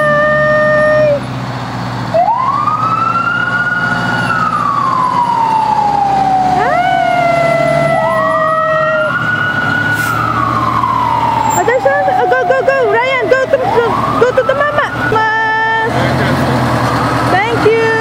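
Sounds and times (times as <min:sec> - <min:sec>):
fire engine siren wailing: 0:00.0 - 0:18.0
steady high siren tone: 0:02.1 - 0:15.9.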